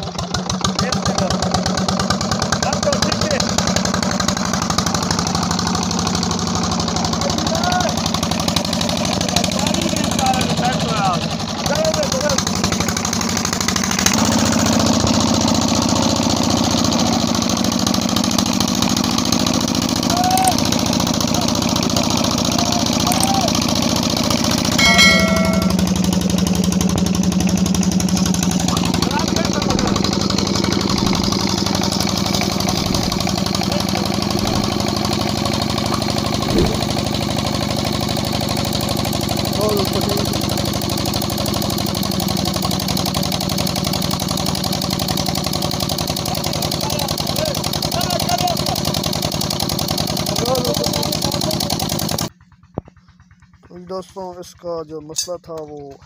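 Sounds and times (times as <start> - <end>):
diesel engine running: 0.0 - 56.0
loud thud: 36.4 - 37.0.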